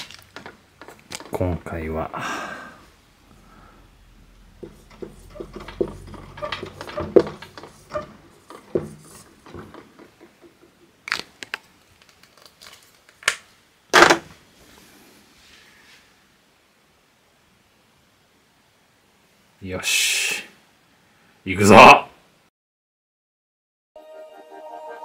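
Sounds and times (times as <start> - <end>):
marker squeaking on whiteboard: 4.6 - 10.2.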